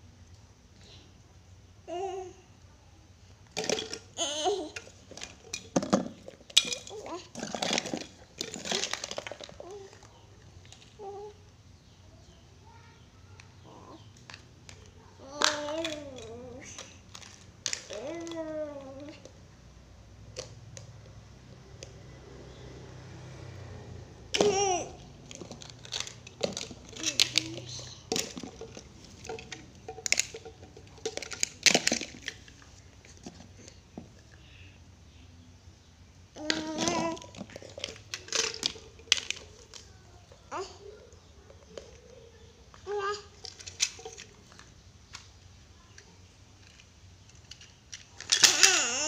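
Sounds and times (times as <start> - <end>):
toddler babbling: 1.9 - 2.5, 4.1 - 4.8, 6.9 - 7.4, 9.6 - 10.3, 11.0 - 11.4, 12.6 - 14.1, 15.1 - 16.9, 17.8 - 19.3, 24.3 - 25.2, 26.9 - 28.4, 36.4 - 37.6, 39.9 - 41.3, 42.8 - 43.4, 48.4 - 49.0
plastic toys clicking: 3.4 - 11.4, 13.3 - 19.4, 20.2 - 21.2, 24.3 - 34.3, 36.4 - 49.0.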